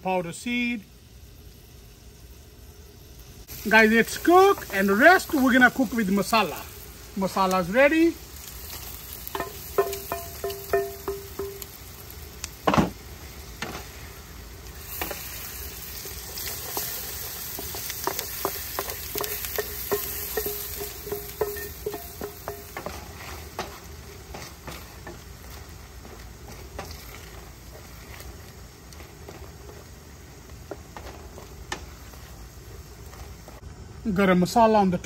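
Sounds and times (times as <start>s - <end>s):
curry sizzling in pan: 0.0s - 34.3s
spoon scraping pan: 16.0s - 28.4s.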